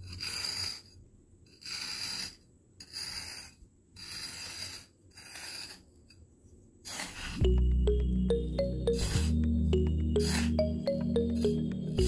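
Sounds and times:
metal trowel scraping sand: 0.0 - 5.9, 6.8 - 7.4, 10.2 - 10.6.

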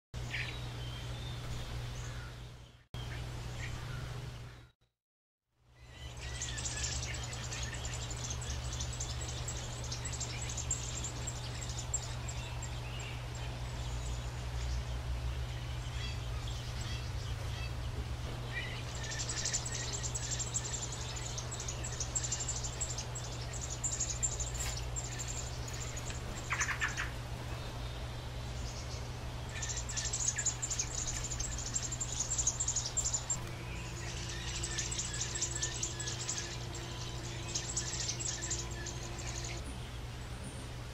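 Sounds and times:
steady low hum: 5.6 - 40.9
nestlings peeping: 5.8 - 40.3.

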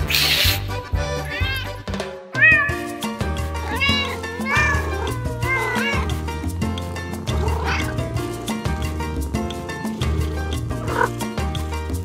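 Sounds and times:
cat meowing: 0.0 - 0.6, 1.2 - 1.8, 2.4 - 6.3, 7.3 - 8.0
background music: 0.0 - 12.0.

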